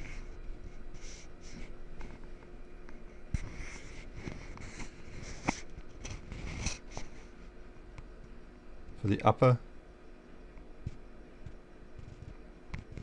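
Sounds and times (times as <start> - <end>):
fingers rustling thin wires: 0.0 - 7.6, 10.8 - 13.0.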